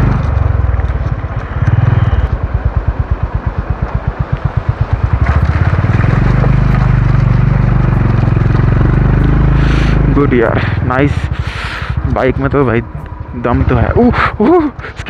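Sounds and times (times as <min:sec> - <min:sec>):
motorcycle engine pulling at low revs: 0:00.0 - 0:15.0.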